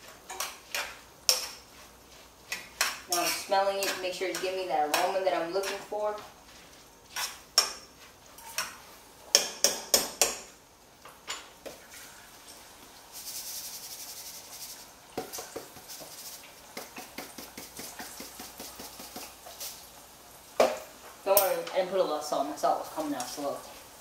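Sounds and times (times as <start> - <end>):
spoon knocking on pot: 9.3 - 10.5
salt pouring hiss: 11.8 - 21.0
salt shaker ticking: 13.1 - 19.8.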